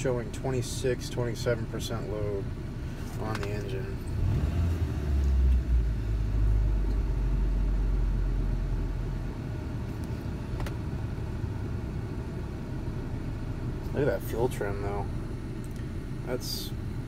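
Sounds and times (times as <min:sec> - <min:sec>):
engine idling: 0:05.2 - 0:17.0.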